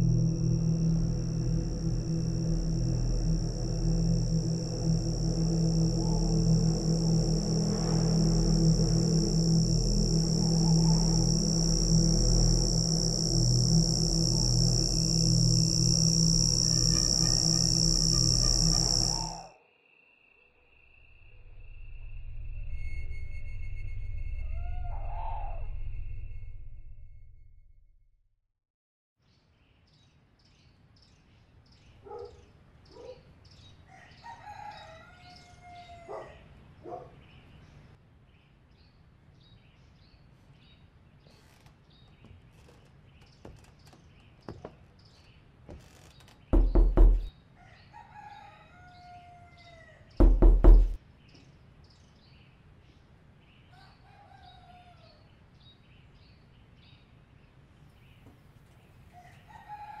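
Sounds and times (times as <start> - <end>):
rooster crowing: 33.9 - 36.4, 46.6 - 51.0, 53.7 - 55.3, 59.1 - 60.0.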